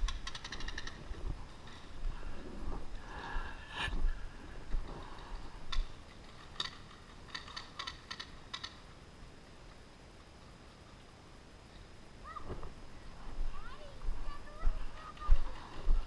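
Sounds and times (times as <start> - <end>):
muffled rustling and knocks of gear: 0.0 - 3.0.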